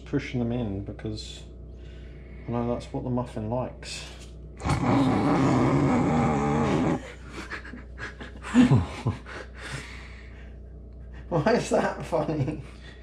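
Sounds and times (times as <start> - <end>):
man laughing hard: 6.6 - 9.9.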